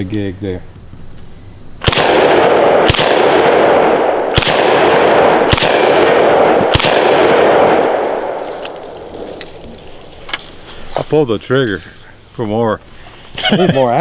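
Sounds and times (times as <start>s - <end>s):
shotgun shots with echo: 1.8s - 9.6s.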